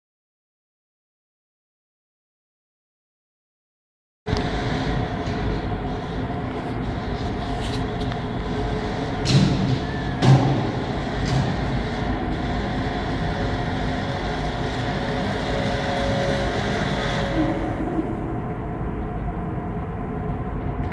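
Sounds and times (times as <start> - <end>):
electric cart hum and rumble: 4.3 - 20.9.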